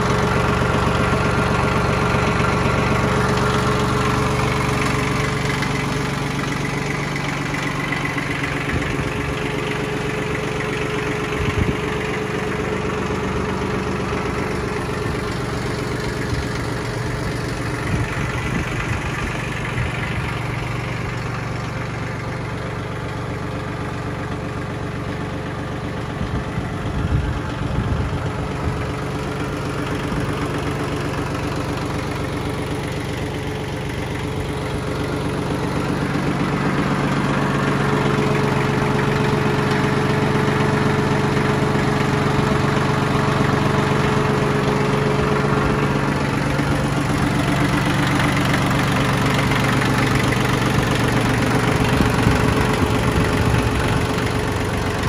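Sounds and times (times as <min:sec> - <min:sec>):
tractor diesel engine idling: 0:00.0 - 0:55.0.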